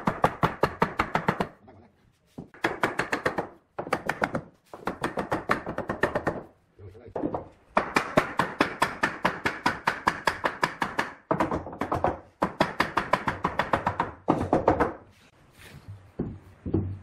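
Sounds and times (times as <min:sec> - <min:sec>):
wooden mallet knocking on wood: 0:07.2 - 0:15.0.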